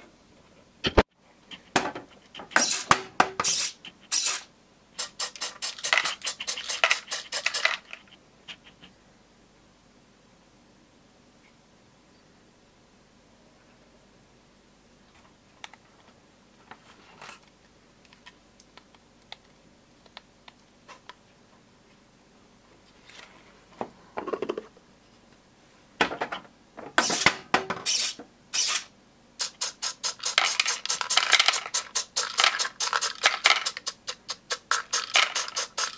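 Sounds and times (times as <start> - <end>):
plastic parts tapping and clicking: 30.1 - 35.9.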